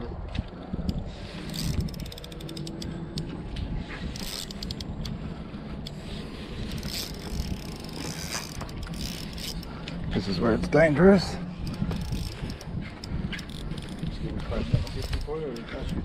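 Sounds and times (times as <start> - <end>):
fishing reel clicking: 0.8 - 3.3, 4.1 - 5.2, 5.8 - 10.0, 11.6 - 16.0.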